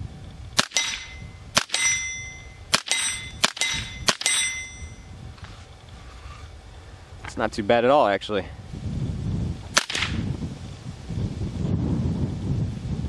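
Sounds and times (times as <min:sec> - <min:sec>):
rifle shots: 0:00.6 - 0:04.7, 0:09.8 - 0:10.3
bullet clanging on steel plate: 0:00.6 - 0:05.1.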